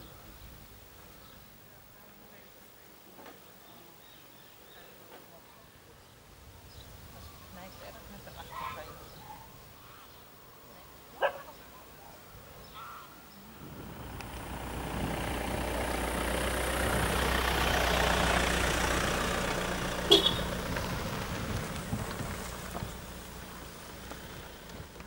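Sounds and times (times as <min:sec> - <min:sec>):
dog barking: 0:11.2 - 0:11.7
vehicle passing: 0:13.5 - 0:25.0.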